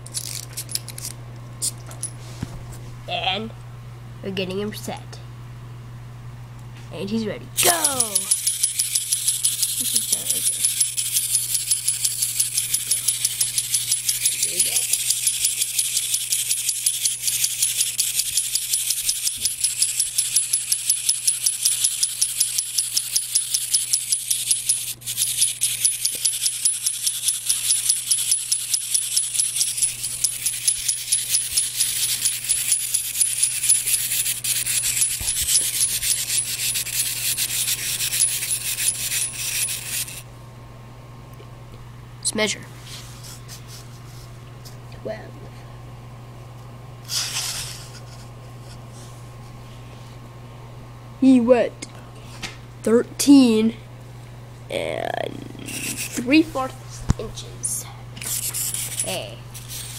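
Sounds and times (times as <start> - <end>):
clockwork toy gears clicking: 0.0 - 1.1, 7.6 - 40.2, 58.3 - 59.9.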